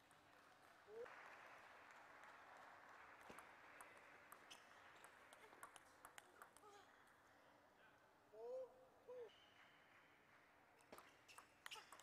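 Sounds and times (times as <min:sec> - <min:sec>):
faint crowd applause: 0:00.0 - 0:06.8.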